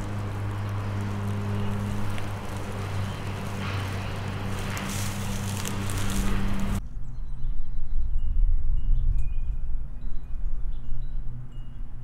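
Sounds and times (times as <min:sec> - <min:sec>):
airy hiss: 0:00.0 - 0:06.8
lawn mower engine running: 0:00.0 - 0:06.8.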